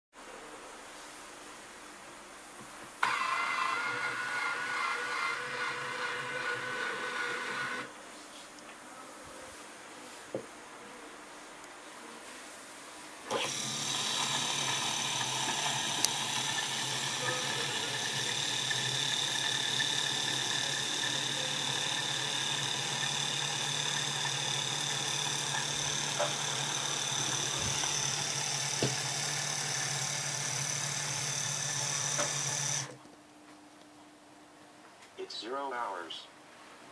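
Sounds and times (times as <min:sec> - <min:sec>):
motor hum: 0:03.0 - 0:07.9, 0:13.2 - 0:33.1.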